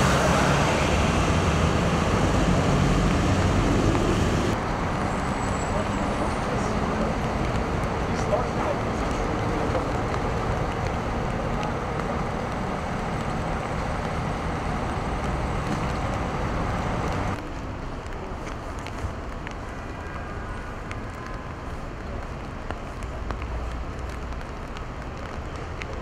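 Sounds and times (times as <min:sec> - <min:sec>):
expressway traffic noise: 0:00.0 - 0:26.0
traffic on wet road: 0:00.0 - 0:26.0.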